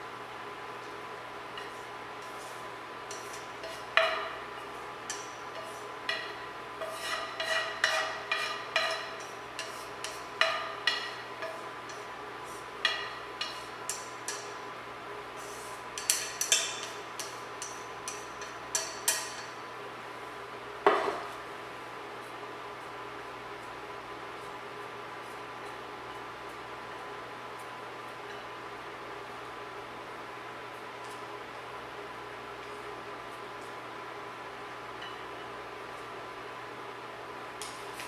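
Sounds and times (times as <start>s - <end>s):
faint steady hum: 0.0s - 38.0s
chopsticks tapping a frying pan: 1.5s - 2.4s, 3.1s - 14.6s, 16.0s - 19.6s, 35.0s - 35.5s.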